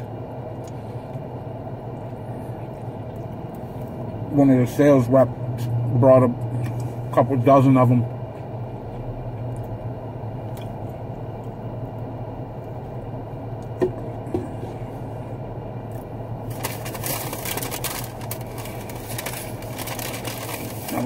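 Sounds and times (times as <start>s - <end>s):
car cabin hum: 0.0s - 21.0s
food packaging rustling: 16.4s - 21.0s.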